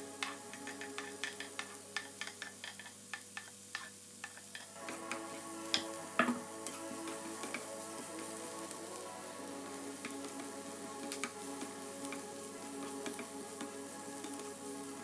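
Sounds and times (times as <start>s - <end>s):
music with ticking beat: 0.0s - 3.8s, 4.4s - 15.0s
plastic spatula striking frying pan: 0.2s - 6.4s.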